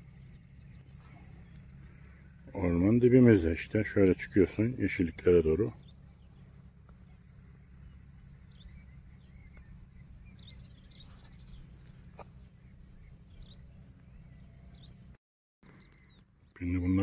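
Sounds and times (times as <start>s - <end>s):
cricket chirping: 0.0s - 2.5s, 5.8s - 15.2s
low steady rumble: 0.0s - 17.0s.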